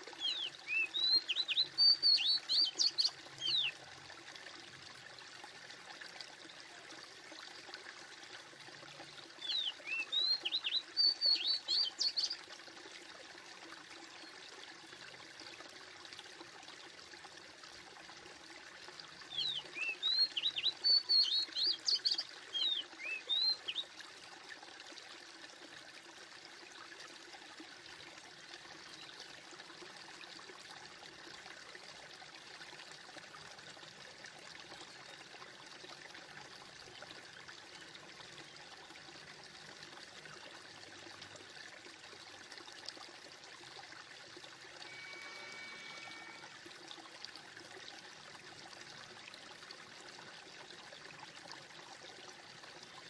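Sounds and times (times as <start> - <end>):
faint rushing water: 0.0 - 53.0
bird chirps: 0.2 - 3.7
high steady tone: 44.8 - 46.6.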